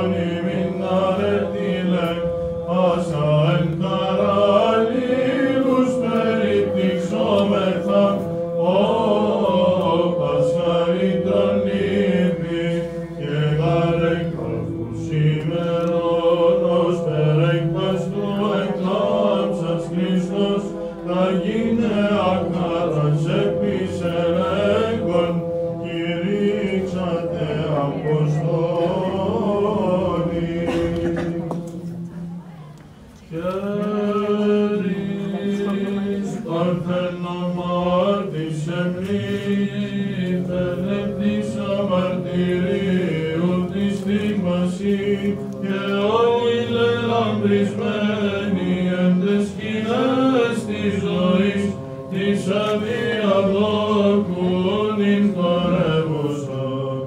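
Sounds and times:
held drone note: 0:00.0 - 0:56.8
chant vocal line: 0:00.0 - 0:57.0.

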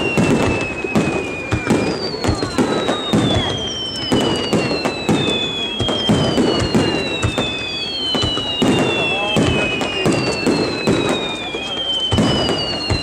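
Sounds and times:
falling firework whistles: 0:00.0 - 0:13.0
fireworks bangs and crackles: 0:00.0 - 0:13.0.

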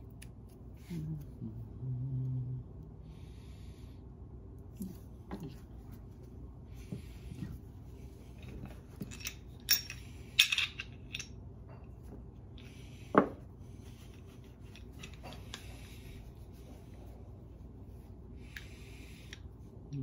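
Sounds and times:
metal parts clinking on workbench: 0:08.4 - 0:11.3.

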